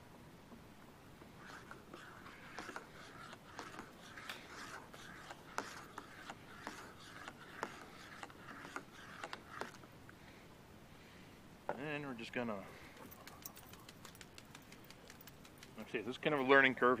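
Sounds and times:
spoon scraping a metal cup: 0:01.4 - 0:09.8.

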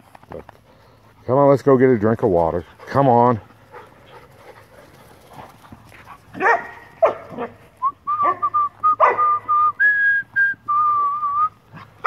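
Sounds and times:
dogs yelping and barking: 0:05.9 - 0:09.5.

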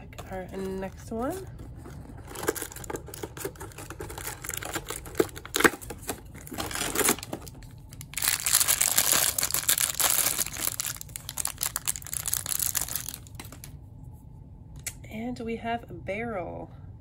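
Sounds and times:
plastic bag crinkling: 0:00.2 - 0:13.7
cardboard tearing: 0:01.9 - 0:13.2.

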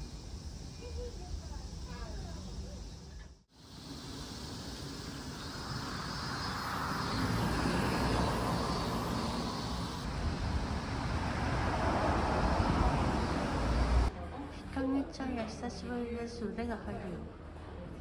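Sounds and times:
passing vehicle: 0:05.0 - 0:14.1.

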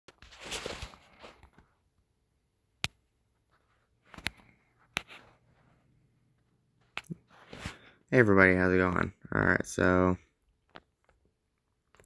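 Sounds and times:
phone rustling: 0:00.1 - 0:02.0, 0:02.8 - 0:07.9, 0:10.5 - 0:12.0.

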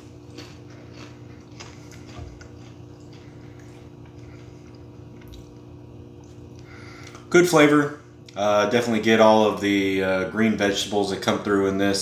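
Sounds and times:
chewing crunchy cracker: 0:00.0 - 0:07.2
low electrical hum: 0:00.0 - 0:12.0.

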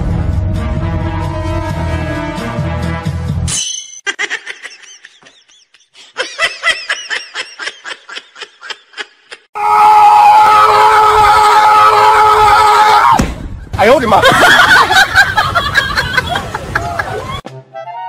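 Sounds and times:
high-pitched giggling: 0:04.0 - 0:09.5.

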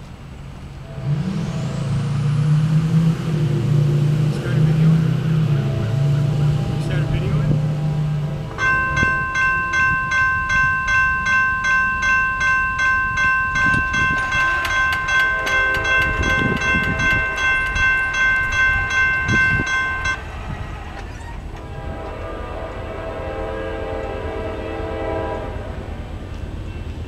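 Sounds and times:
railroad crossing bell ringing: 0:04.2 - 0:20.3.

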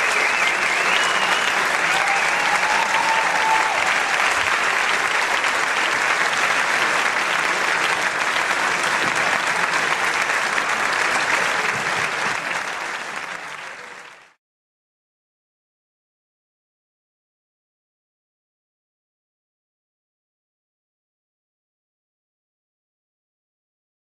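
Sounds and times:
audience applauding: 0:00.0 - 0:14.4.

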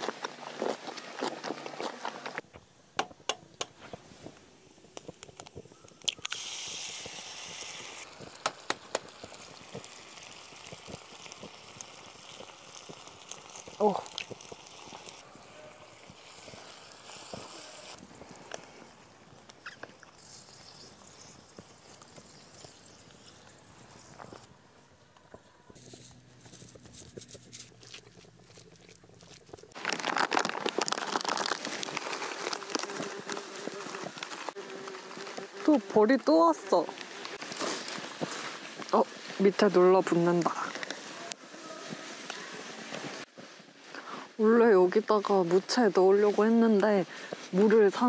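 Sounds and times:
egg sizzling on a griddle: 0:04.6 - 0:24.5
sharp pops: 0:04.9 - 0:09.9
foil bag rustling: 0:25.8 - 0:35.8, 0:36.5 - 0:43.9.

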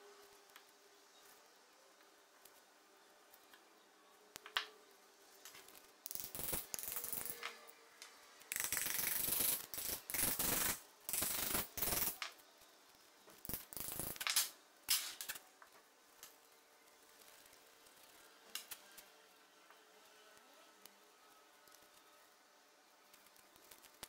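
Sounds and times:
metal parts clicking: 0:05.4 - 0:07.7, 0:08.5 - 0:12.4, 0:13.4 - 0:15.4.

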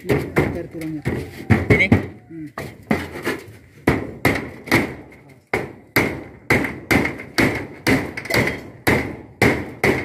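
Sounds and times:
hammer striking nail into metal roof: 0:00.0 - 0:10.0.

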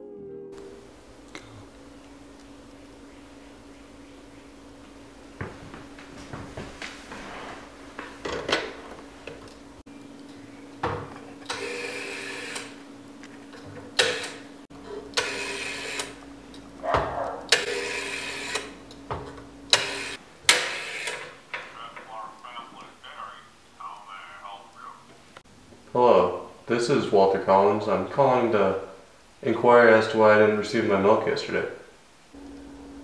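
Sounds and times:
rotary dial clicking and whirring: 0:11.4 - 0:12.8, 0:15.1 - 0:16.7, 0:17.5 - 0:19.0, 0:19.7 - 0:21.3.

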